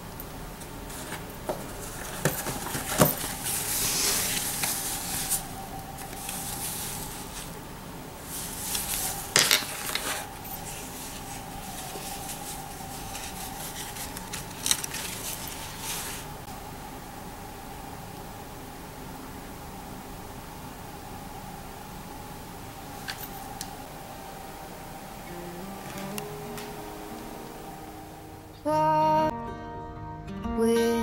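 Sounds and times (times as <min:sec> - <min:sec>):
fabric rustling: 0:00.7 - 0:16.5.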